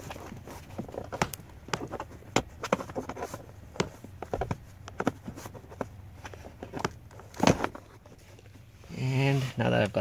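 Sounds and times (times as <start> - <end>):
rustling: 0.0 - 10.0
plastic clicks and knocks: 0.7 - 7.9.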